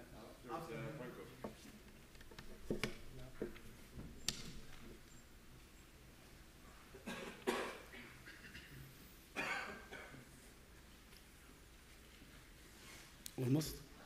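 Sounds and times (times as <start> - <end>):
laptop clicks and knocks: 2.2 - 4.9.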